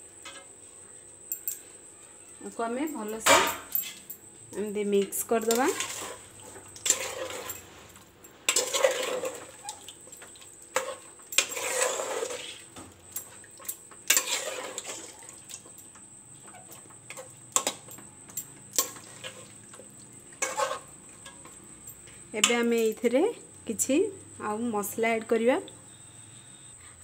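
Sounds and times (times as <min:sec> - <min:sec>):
metal spoon scraping pot: 0:05.2 - 0:07.7, 0:08.5 - 0:09.8, 0:10.7 - 0:12.7, 0:14.1 - 0:15.2, 0:20.4 - 0:21.5.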